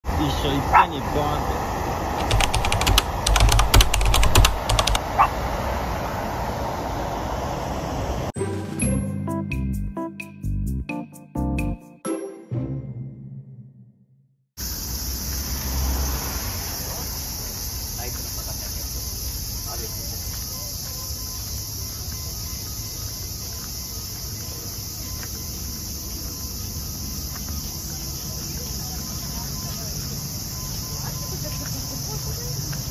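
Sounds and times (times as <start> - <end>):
outdoor background rumble: 0.1 - 8.3
keyboard key clicks: 2.2 - 5.0
high-pitched insect chorus: 14.6 - 32.9.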